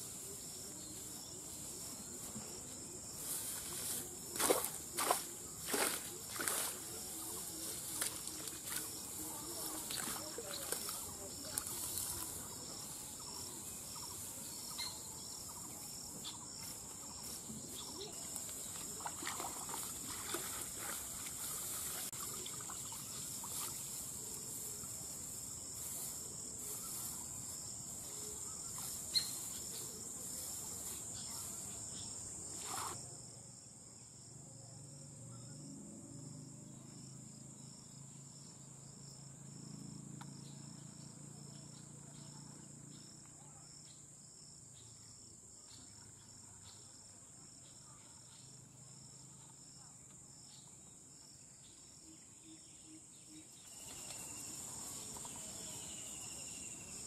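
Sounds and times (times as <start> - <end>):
wet grass rustling: 0.0 - 14.8, 16.4 - 31.8
high-pitched insect trill: 0.0 - 57.0
splashing in shallow water: 9.7 - 12.2, 18.4 - 23.9.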